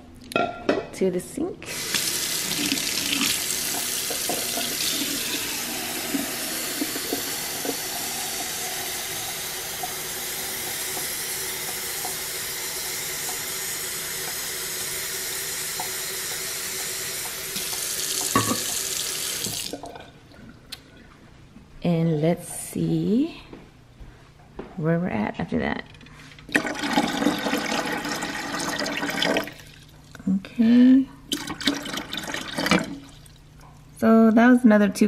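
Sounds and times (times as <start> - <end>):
faucet water splashing into sink: 1.7 - 20.1, 26.5 - 29.8, 31.3 - 33.3.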